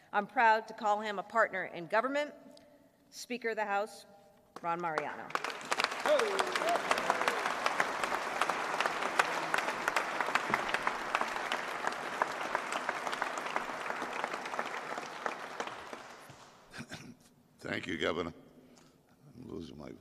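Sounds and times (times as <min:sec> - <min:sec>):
audience applause: 0:05.0 - 0:16.6.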